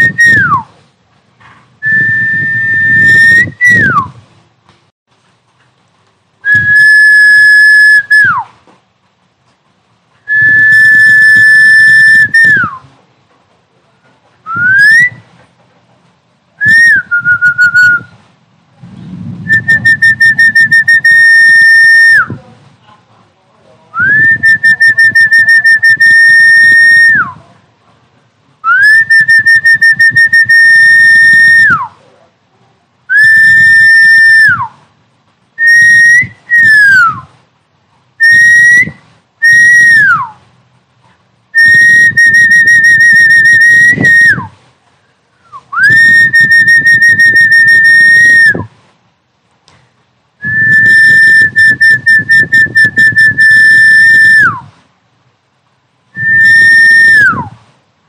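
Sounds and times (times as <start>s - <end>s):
high whistles: 0.0s - 0.8s, 1.8s - 4.2s, 6.4s - 8.6s, 10.2s - 12.9s, 14.5s - 15.4s, 16.6s - 18.3s, 19.4s - 22.4s, 24.0s - 27.4s, 28.6s - 32.0s, 33.1s - 34.8s, 35.6s - 37.4s, 38.2s - 40.5s, 41.6s - 44.6s, 45.4s - 48.7s, 50.4s - 54.7s, 56.2s - 57.7s.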